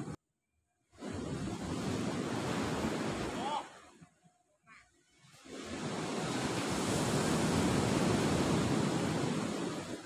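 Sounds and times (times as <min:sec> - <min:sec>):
surf breaking on beach: 0:01.0 - 0:04.0, 0:05.3 - 0:10.0.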